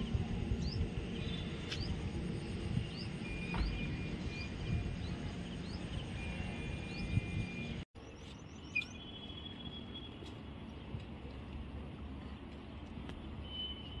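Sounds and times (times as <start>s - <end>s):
outdoor background noise: 0.0s - 14.0s
birds chirping and whistling: 0.6s - 9.8s.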